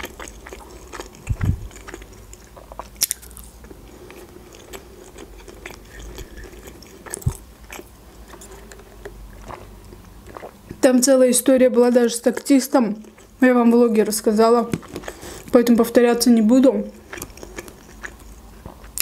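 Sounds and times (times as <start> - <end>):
chewing mouth sounds: 0.0 - 10.8.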